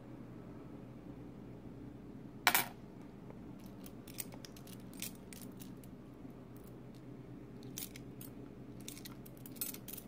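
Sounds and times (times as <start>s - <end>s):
low steady hum: 0.0s - 10.0s
coins clicking together: 7.6s - 10.0s.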